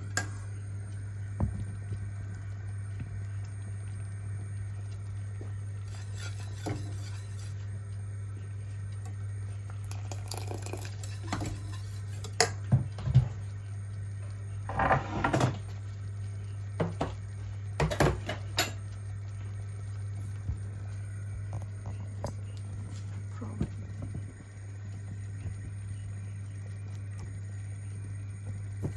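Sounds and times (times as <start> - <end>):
low hum: 0.0 - 28.9
wire whisk scraping saucepan: 5.8 - 7.7, 10.4 - 12.5.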